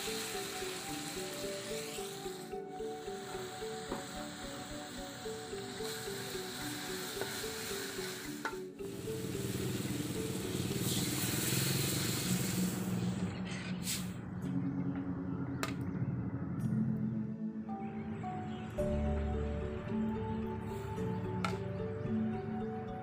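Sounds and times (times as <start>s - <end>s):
background music: 0.0s - 13.1s, 14.1s - 23.0s
coconut milk sizzling in wok: 0.0s - 13.1s.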